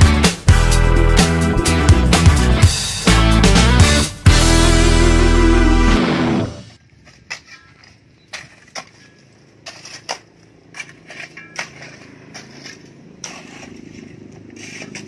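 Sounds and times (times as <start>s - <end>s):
metal tools striking stony soil: 8.3s - 15.0s.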